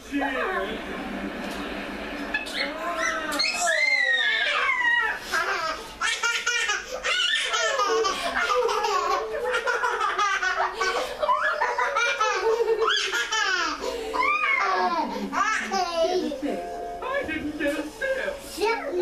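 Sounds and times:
young child laughing and squealing: 0:02.4 - 0:05.8, 0:14.1 - 0:15.0.

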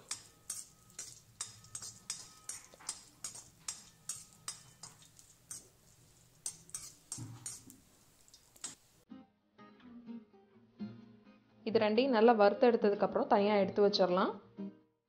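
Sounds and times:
ladle scraping and clinking on metal pan: 0:00.0 - 0:08.8.

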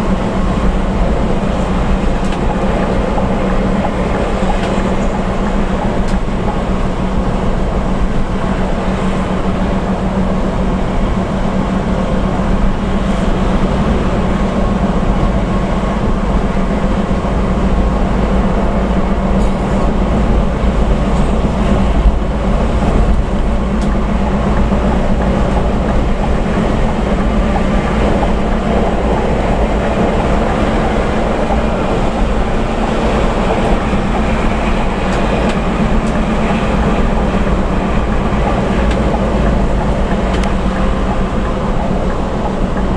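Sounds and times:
bus engine and road rumble: 0:00.0 - 0:42.9.

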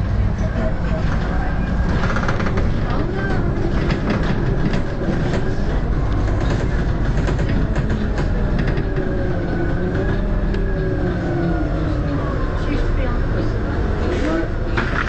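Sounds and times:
bus diesel engine drone: 0:00.0 - 0:15.0
body rattles and clicks: 0:00.4 - 0:10.6.

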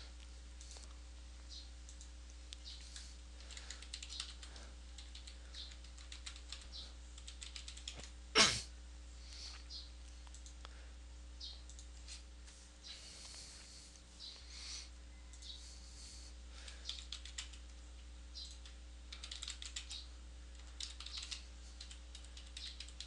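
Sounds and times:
typing on a computer keyboard: 0:03.4 - 0:08.2, 0:16.7 - 0:17.8, 0:18.4 - 0:23.0.

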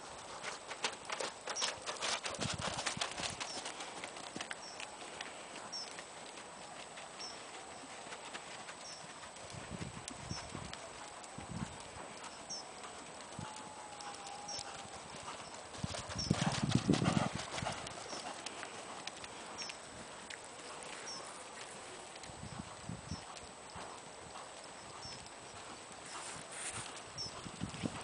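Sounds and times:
horse hoofbeats on loose surface: 0:00.4 - 0:04.5, 0:15.7 - 0:18.3.

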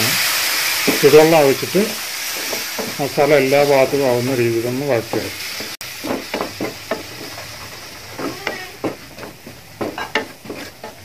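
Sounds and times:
faint sizzle: 0:00.0 - 0:11.0
spatula scraping a frying pan: 0:02.2 - 0:04.1, 0:05.0 - 0:11.0.

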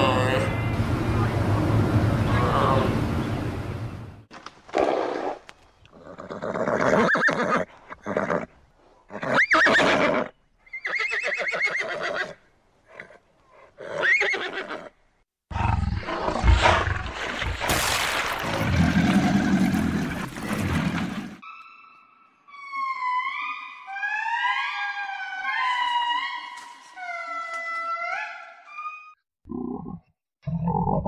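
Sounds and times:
horses whinnying: 0:06.0 - 0:08.5, 0:09.1 - 0:12.4.

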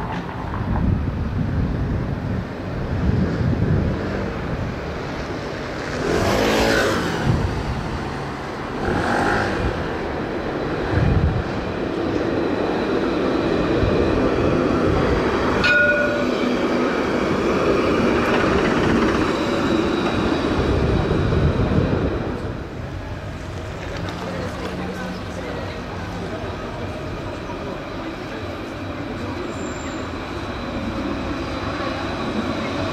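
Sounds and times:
tram rumbling on rails: 0:00.0 - 0:32.9
tram bell ding: 0:15.5 - 0:16.8.

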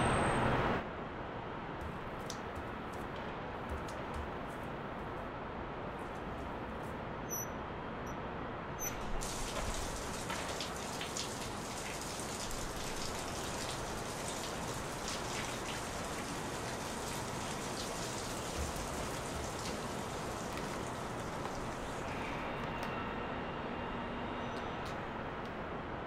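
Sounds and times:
water running into bathtub: 0:09.2 - 0:22.1.

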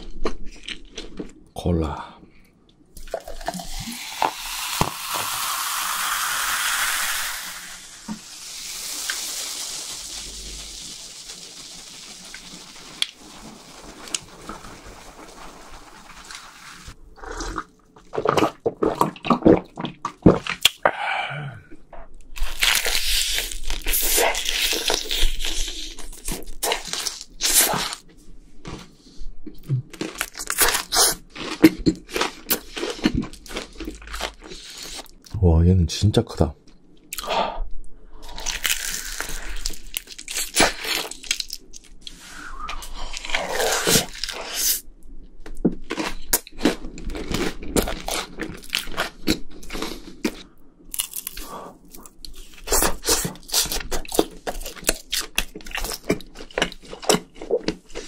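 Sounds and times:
cola pouring into glass: 0:03.0 - 0:10.7
fizzing carbonation hiss: 0:03.2 - 0:17.0
crunchy bites and chewing: 0:22.4 - 0:28.0, 0:29.6 - 0:35.3, 0:38.2 - 0:44.8, 0:45.5 - 0:58.0.

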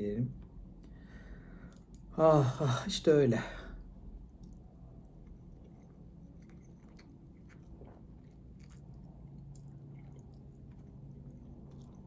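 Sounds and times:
chewing and slurping spaghetti: 0:04.3 - 0:12.0.

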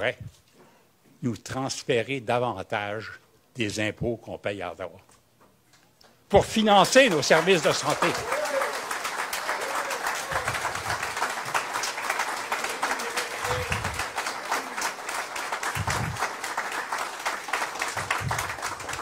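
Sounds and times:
audience applauding: 0:06.6 - 0:19.0.

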